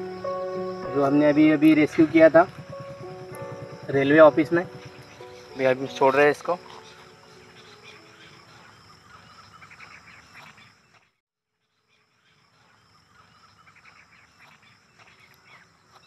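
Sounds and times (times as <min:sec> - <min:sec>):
high insect drone: 0:00.0 - 0:10.4
birds chirping: 0:00.0 - 0:11.1.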